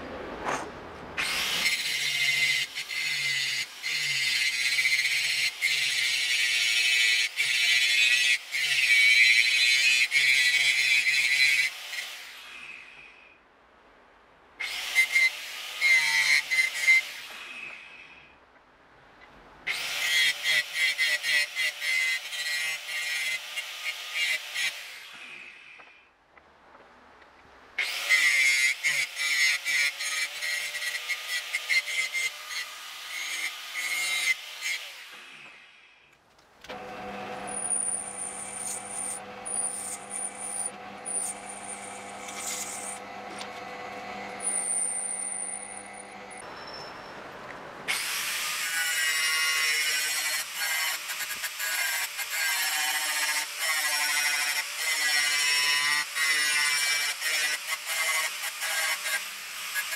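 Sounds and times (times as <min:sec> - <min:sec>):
angle grinder cutting steel: 0:01.2 - 0:12.4, 0:27.8 - 0:35.7, 0:36.7 - 0:46.5, 0:47.9 - 0:59.9
drill press whining: 0:36.7 - 0:46.4.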